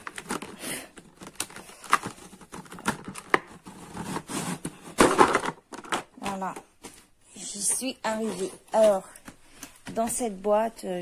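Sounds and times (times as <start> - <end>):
plastic packaging clicking and snapping: 0.0 - 3.9.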